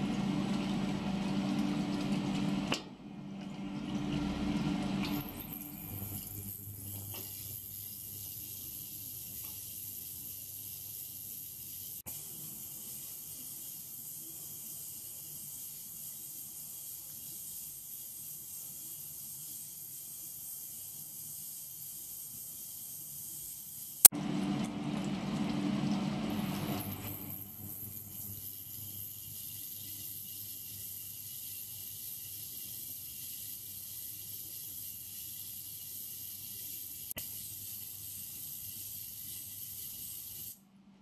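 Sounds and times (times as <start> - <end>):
low hum: 3.0 - 6.7
ultrasonic cleaner hiss: 4.9 - 24.1, 26.3 - 40.6.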